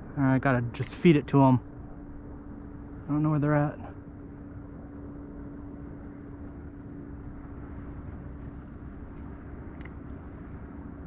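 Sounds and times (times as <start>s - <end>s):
constant low hum: 0.0s - 11.0s
wind: 0.0s - 11.0s
faint click: 9.7s - 10.0s.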